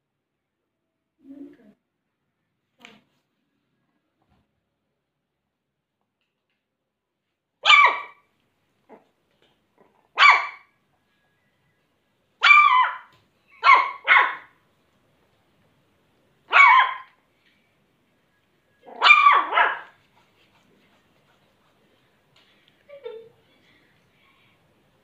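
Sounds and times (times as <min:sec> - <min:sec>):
puppy barking: 0:07.6 - 0:08.3, 0:10.1 - 0:10.7, 0:12.4 - 0:14.6, 0:16.5 - 0:17.2, 0:18.8 - 0:20.0.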